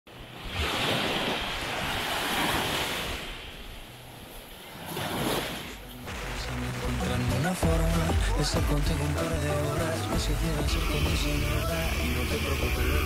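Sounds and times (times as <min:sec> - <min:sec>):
ocean waves washing in: 0:00.1 - 0:13.0.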